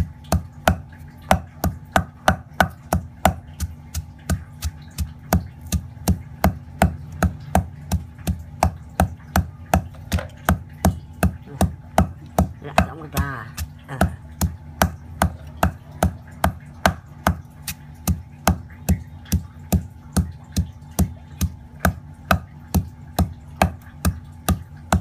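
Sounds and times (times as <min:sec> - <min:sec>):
pestle pounding in stone mortar: 0:00.0 - 0:25.0.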